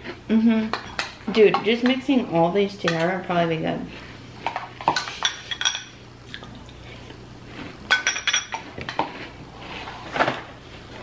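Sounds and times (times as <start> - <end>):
spoons clinking on glass bowls: 4.9 - 6.0, 7.9 - 8.6.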